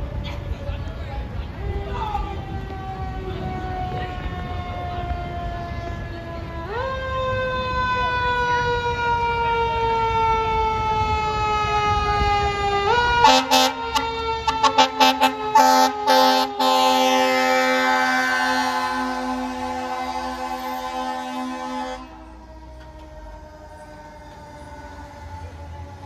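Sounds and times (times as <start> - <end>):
fire truck siren wailing: 0.0 - 26.0
air horn blasts: 13.1 - 22.4.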